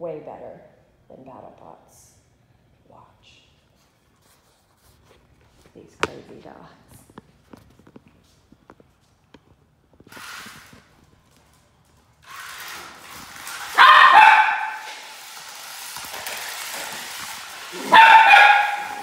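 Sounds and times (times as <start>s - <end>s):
toy car motors whirring: 12.2s - 18.0s
dog barking excitedly: 13.6s - 15.0s, 17.7s - 19.0s.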